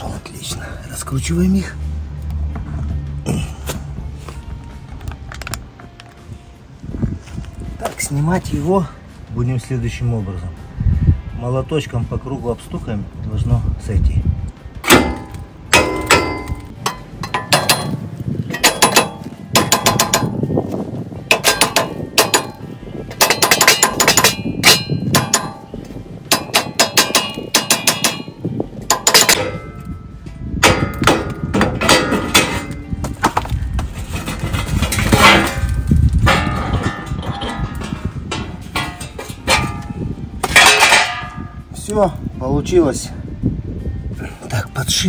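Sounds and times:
hammer clanging on metal: 14.8s - 20.5s, 21.3s - 30.0s, 30.6s - 41.6s.

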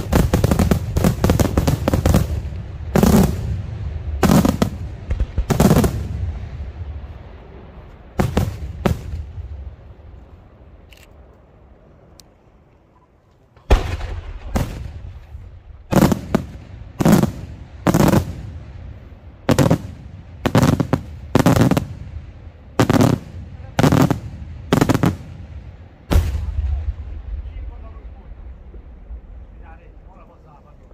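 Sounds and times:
firework bangs with echo: 0.0s - 6.6s, 8.2s - 9.6s, 13.7s - 18.7s, 22.8s - 28.6s.

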